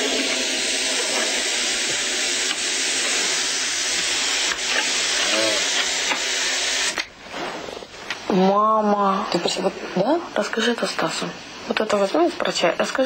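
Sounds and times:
air hissing from balloon neck: 0.0 - 7.9.

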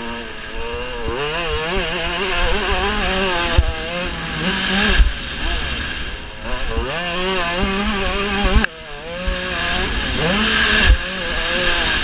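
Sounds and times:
motorbike engine revving: 0.0 - 12.0.

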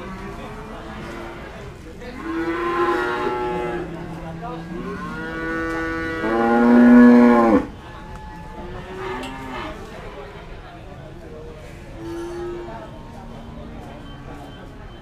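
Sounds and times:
cattle mooing: 2.2 - 7.7.

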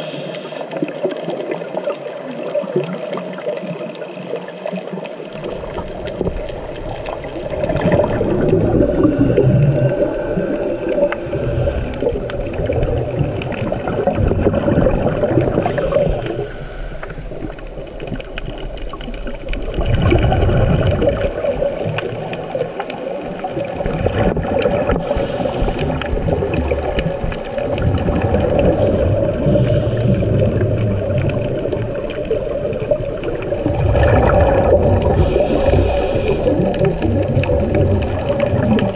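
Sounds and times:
regulator breaths underwater: 0.0 - 1.1, 5.4 - 17.8, 24.0 - 27.1, 28.0 - 31.9, 33.2 - 38.9
bubbles gurgling: 0.0 - 38.9.

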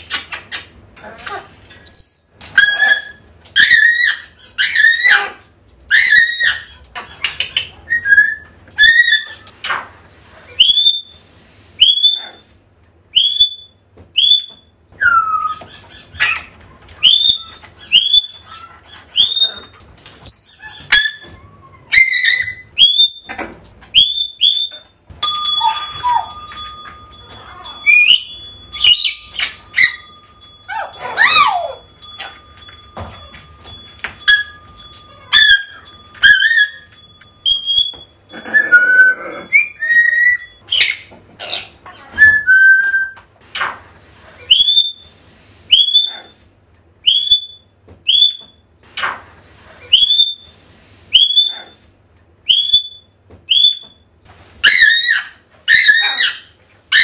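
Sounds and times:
parrot whistling calls: 10.5 - 11.2, 11.8 - 12.4, 13.1 - 15.7, 17.0 - 21.3, 21.9 - 23.3, 24.0 - 24.9, 27.8 - 32.4, 34.2 - 41.0, 42.2 - 43.2, 44.4 - 45.1, 45.7 - 46.3, 47.0 - 48.6, 49.8 - 50.5, 51.1 - 51.8, 52.5 - 54.0
steady held tone: 25.1 - 40.6.

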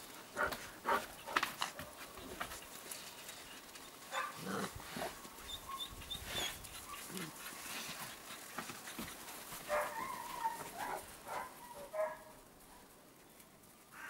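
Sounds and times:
puppies whimpering and whining: 5.2 - 7.4.

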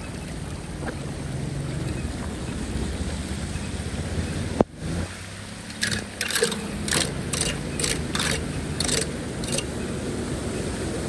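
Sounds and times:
floodwater rushing down drain: 0.0 - 11.0
hand rake scraping grate: 5.6 - 9.8.

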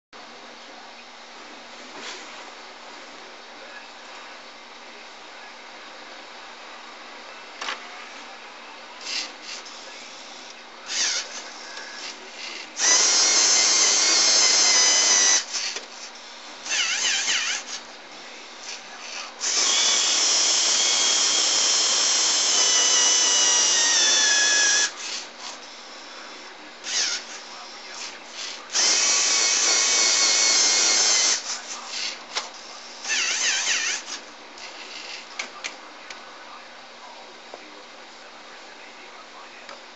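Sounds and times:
motors and plastic gears whirring: 9.0 - 17.9, 18.6 - 25.8, 26.8 - 35.6.

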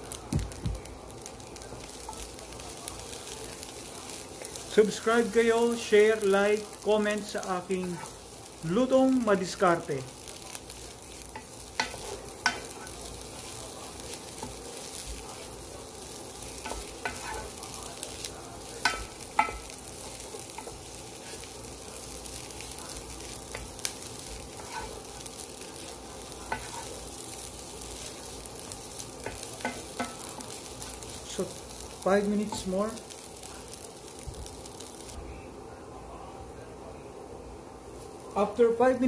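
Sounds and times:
fried rice sizzling in a pot: 0.0 - 39.0
wooden spatula stirring and scraping: 1.8 - 9.0, 10.0 - 33.2.

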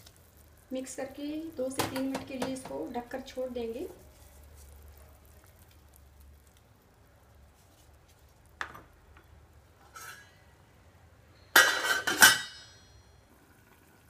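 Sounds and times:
metal lid clinking on pot: 11.6 - 12.9.

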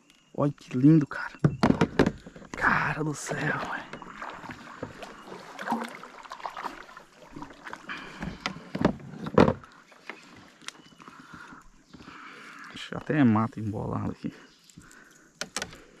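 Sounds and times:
knocks against kayak hull: 1.4 - 2.6, 8.2 - 9.6
water washing: 2.0 - 13.6.

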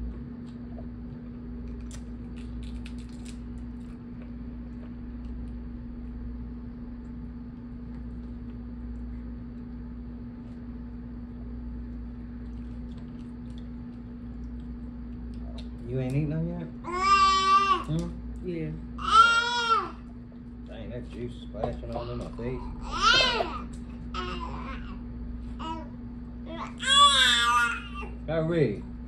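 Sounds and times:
steady low hum: 0.0 - 29.0
crab shells cracking: 1.7 - 4.0.

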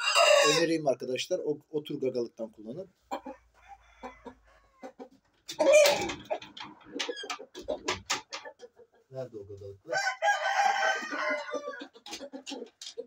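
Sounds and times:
roosters clucking: 0.0 - 0.9, 2.1 - 13.0
knocks and shuffling: 4.8 - 9.6.

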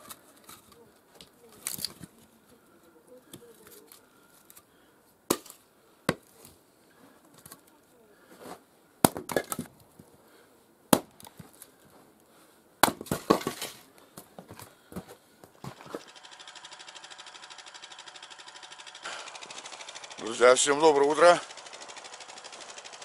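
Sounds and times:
split wood pieces clattering: 0.0 - 2.2, 9.0 - 10.0, 12.8 - 16.1
axe knocks splitting firewood: 5.3 - 6.3, 9.0 - 9.7, 10.9 - 11.6, 12.8 - 13.8.

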